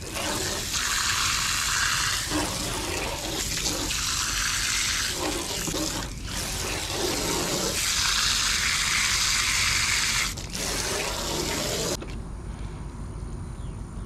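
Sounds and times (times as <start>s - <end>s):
garden hose spraying water: 0.0s - 12.0s.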